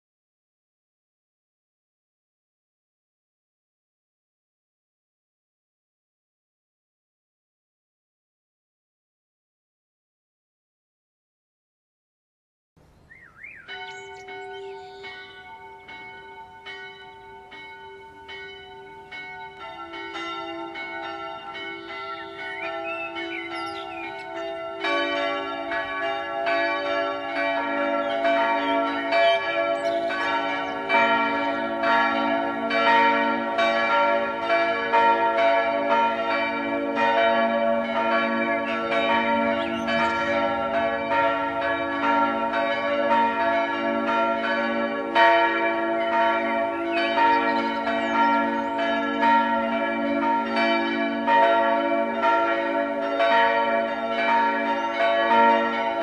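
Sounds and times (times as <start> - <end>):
church bells pealing: 13.6 - 56.0.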